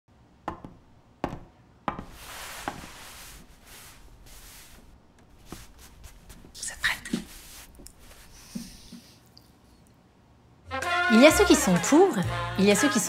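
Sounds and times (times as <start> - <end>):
clothing rustling: 2.0 - 9.8.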